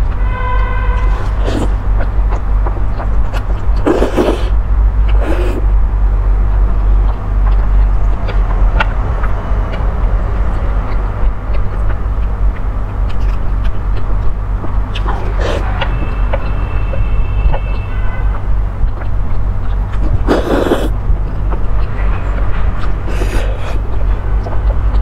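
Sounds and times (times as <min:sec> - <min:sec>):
wet chewing and lip-smacking: 0:00.0 - 0:25.0
slurping noodles: 0:01.2 - 0:01.8, 0:03.8 - 0:05.6, 0:15.2 - 0:15.6, 0:20.0 - 0:20.9, 0:23.0 - 0:23.8.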